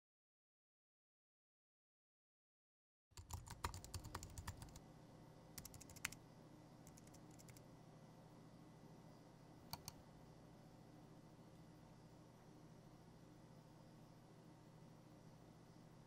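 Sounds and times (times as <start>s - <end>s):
computer mouse clicks: 3.2s - 4.8s, 5.6s - 6.2s, 6.8s - 7.6s, 9.7s - 10.0s
typing on a laptop keyboard: 3.2s - 4.8s, 5.6s - 6.2s, 6.9s - 7.6s, 9.7s - 10.0s
low room hum: 3.2s - 16.0s.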